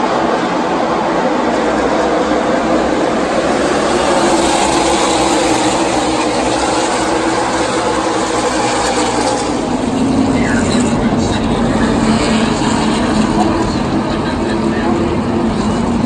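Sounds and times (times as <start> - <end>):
race car engines roaring: 0.0 - 16.0.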